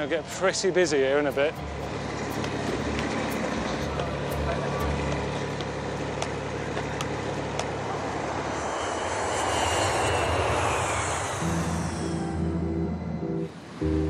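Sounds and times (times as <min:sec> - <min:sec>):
aircraft flying past: 0:00.0 - 0:13.6
faint falling whine: 0:06.6 - 0:14.0
music: 0:11.5 - 0:14.0.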